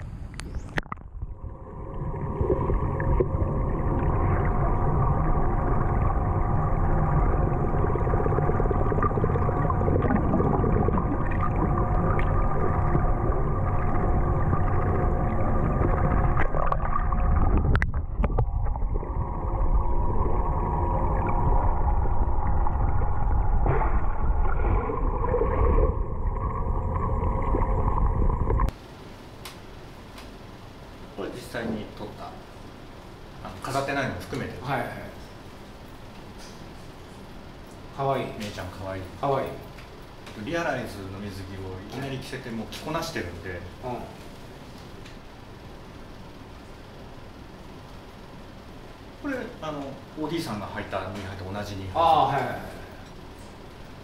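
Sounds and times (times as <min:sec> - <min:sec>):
underwater low rumble: 0:00.0 - 0:28.8
faint hum of held tones: 0:00.0 - 0:54.0
small bubbly blips: 0:00.3 - 0:28.7.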